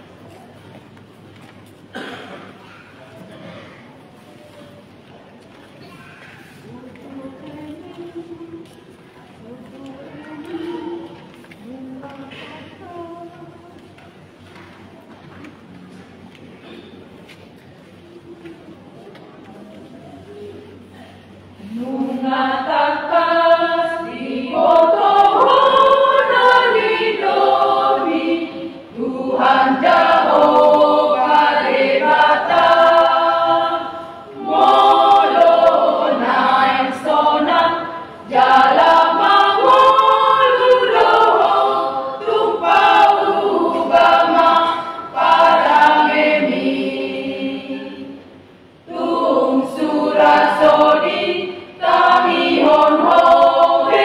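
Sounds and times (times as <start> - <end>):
women's choir singing a hymn: 6.6 - 13.9, 21.5 - 54.0.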